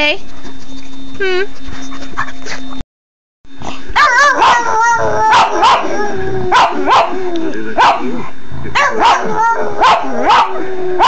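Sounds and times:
dog yipping: 4.0s - 7.2s, 8.8s - 10.5s
dog howling: 4.0s - 8.2s, 8.8s - 11.0s.

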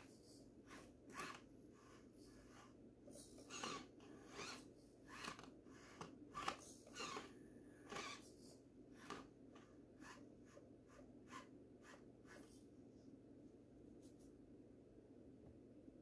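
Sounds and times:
faint steady hum: 0.0s - 16.0s
toy car tyres scraping on stone: 3.4s - 7.3s.

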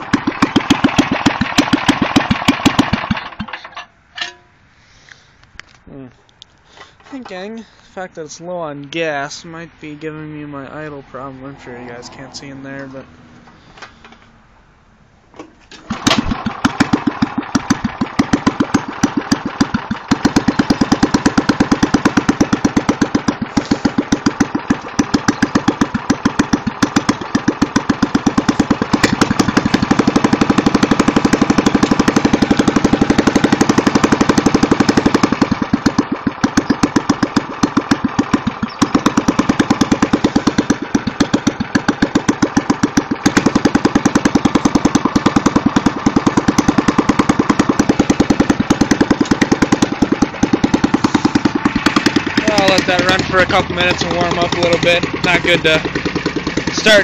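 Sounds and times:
snowblower engine running: 0.0s - 3.8s, 15.8s - 57.0s.

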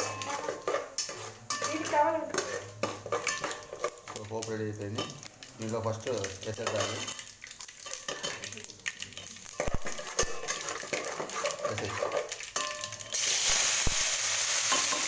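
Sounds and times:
ladle scraping in metal pot: 0.0s - 4.2s, 6.6s - 7.2s, 9.6s - 13.2s
loud steady sizzle in oil: 0.0s - 15.0s.

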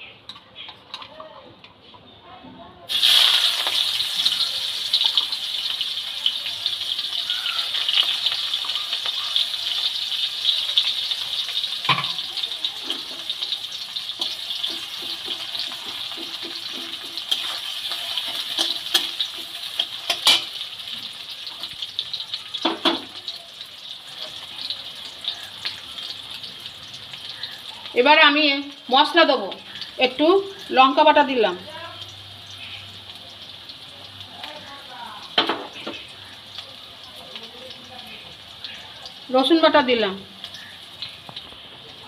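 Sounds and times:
onions sizzling in hot oil: 2.9s - 42.0s
metal spatula knocking on pan: 11.9s - 12.2s, 14.2s - 17.6s.

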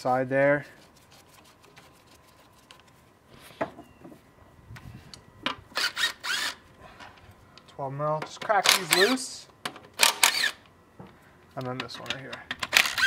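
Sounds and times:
scraping and rubbing: 0.5s - 3.6s.

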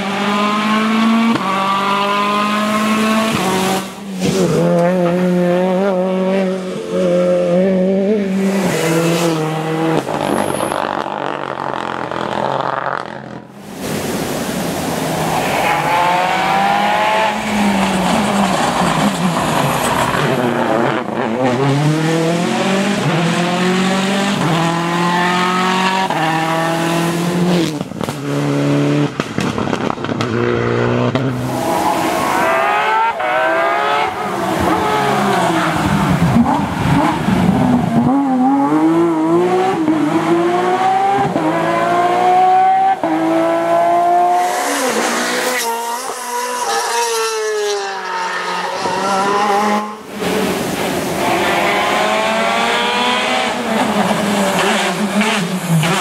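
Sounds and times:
tyres hissing on wet asphalt: 13.5s - 20.4s, 31.4s - 36.2s
rally car engines shifting gears: 14.6s - 56.0s.

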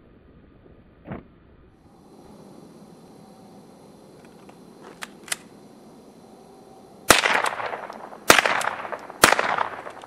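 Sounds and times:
rifle shots echoing: 7.1s - 10.0s.

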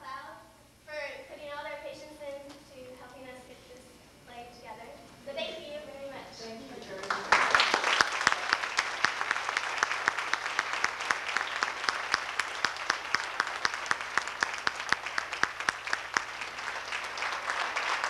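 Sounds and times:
audience applauding: 6.9s - 18.0s.

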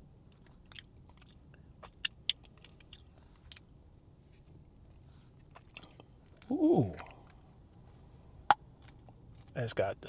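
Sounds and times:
lip smacks and mouth clicks: 0.3s - 3.6s.

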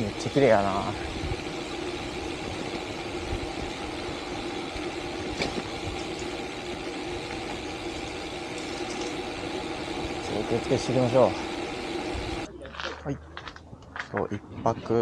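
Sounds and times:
bike tyres rolling on asphalt: 0.0s - 14.4s
wind on microphone: 1.0s - 6.2s.

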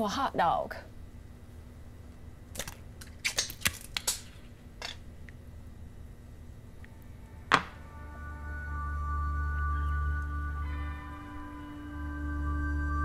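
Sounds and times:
loud knock: 7.5s - 7.8s.

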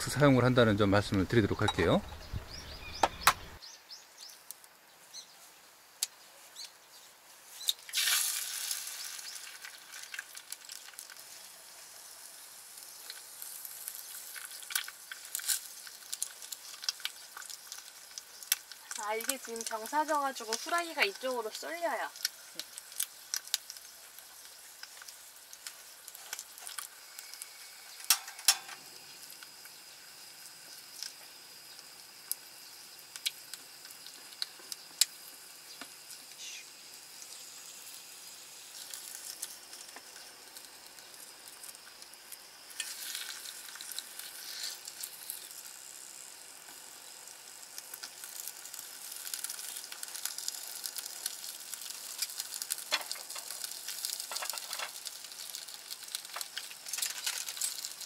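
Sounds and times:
egg sizzling in a pan: 3.5s - 58.0s
utensils clicking against pan: 28.0s - 28.8s, 52.2s - 55.0s.

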